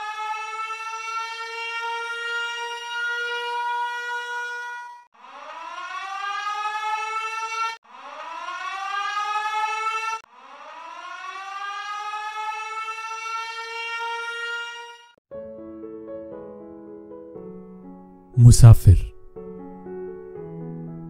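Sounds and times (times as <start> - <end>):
siren wailing: 5.4 - 14.7.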